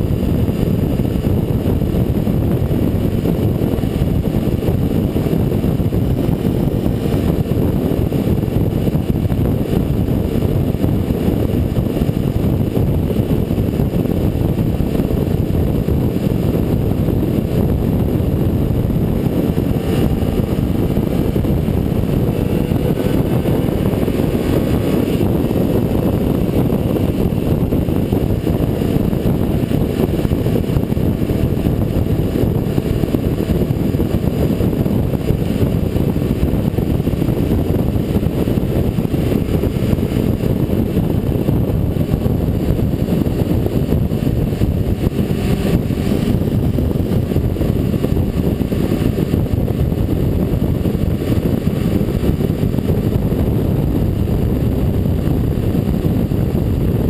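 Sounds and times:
motorcycle engine cruising: 0.0 - 57.0
wind buffeting microphone: 0.0 - 57.0.

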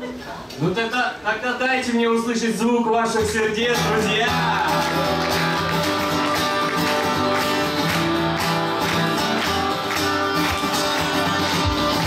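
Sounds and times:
acoustic guitar strumming: 3.1 - 12.0
live band music: 3.8 - 12.0.

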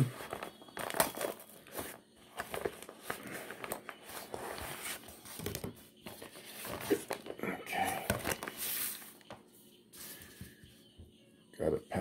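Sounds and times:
paper envelope rustling: 0.1 - 9.4.

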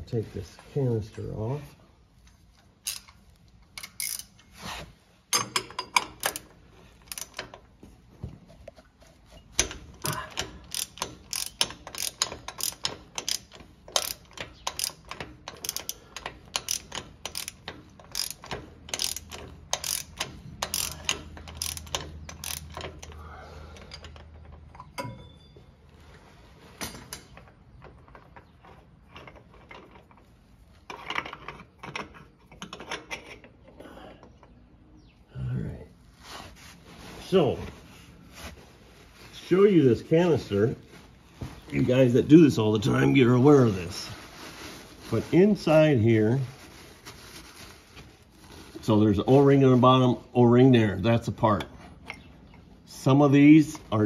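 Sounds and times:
socket ratchet clicking: 2.8 - 3.2, 3.8 - 4.4, 9.6 - 23.2.

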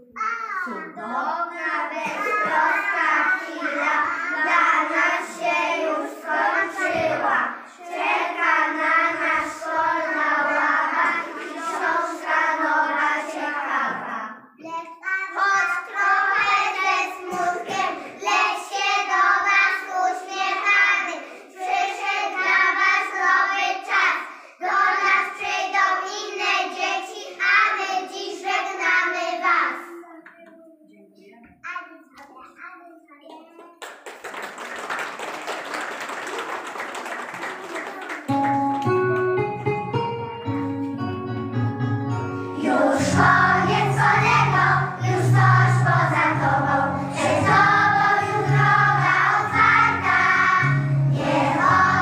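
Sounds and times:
children singing: 1.5 - 14.2, 15.1 - 29.5, 42.5 - 52.0.

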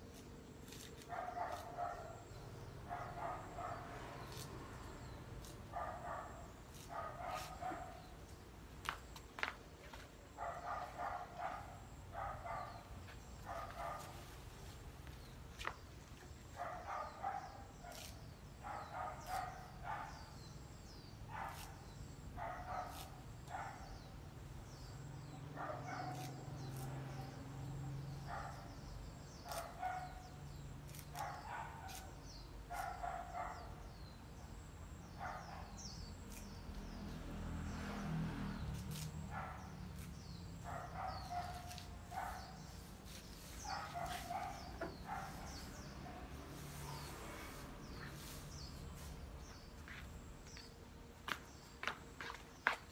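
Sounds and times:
dog barking: 1.1 - 2.2, 2.8 - 4.1, 5.7 - 8.0, 10.4 - 14.2, 16.6 - 20.3, 21.3 - 21.8, 22.4 - 24.0, 25.4 - 27.4, 28.2 - 28.7, 29.4 - 30.3, 30.9 - 33.8, 35.2 - 35.8, 40.6 - 42.7, 43.6 - 47.2.

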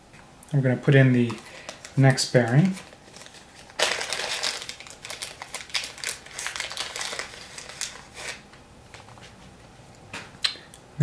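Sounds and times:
plastic bag crinkling: 0.9 - 8.5.

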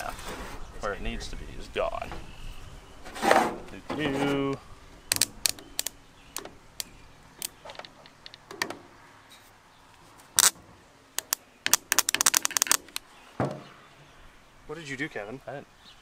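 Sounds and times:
hand tools clicking: 11.2 - 13.0.

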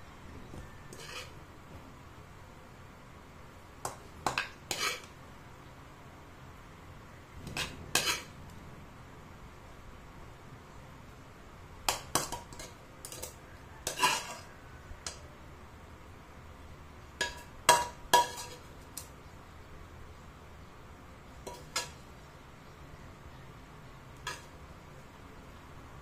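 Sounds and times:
metal spatula clinking on wok: 11.9 - 15.2, 17.2 - 19.1, 21.4 - 22.0.

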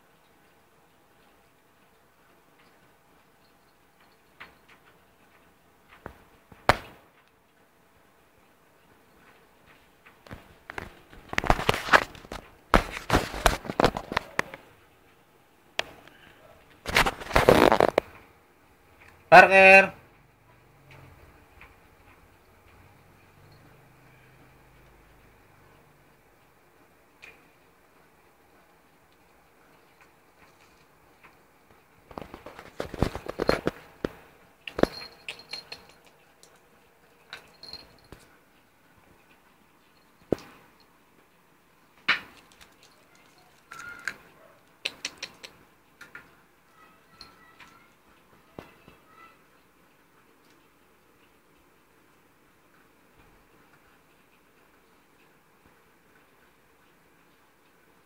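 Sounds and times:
clicks and rustles on microphone: 9.2 - 14.7, 15.8 - 18.3, 29.7 - 38.3.

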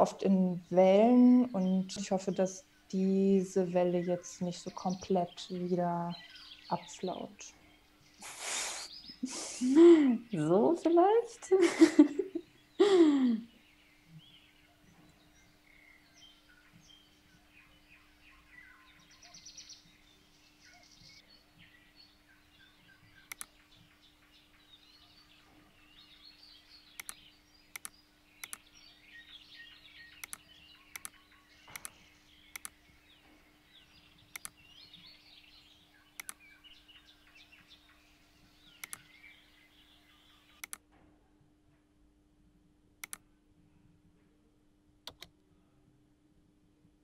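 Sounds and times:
faint birdsong: 0.0 - 41.5
faint steady hum: 0.0 - 47.0
computer mouse clicks: 23.3 - 23.5, 27.0 - 28.7, 30.2 - 32.8, 34.3 - 34.6, 36.2 - 36.4, 38.8 - 39.1, 40.6 - 40.8, 43.0 - 43.2, 45.0 - 45.3.

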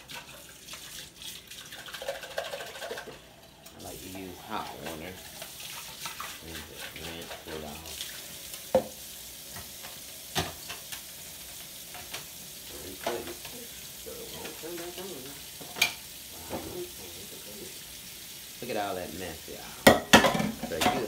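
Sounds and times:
tap water into metal sink: 8.7 - 11.0, 19.8 - 21.0.

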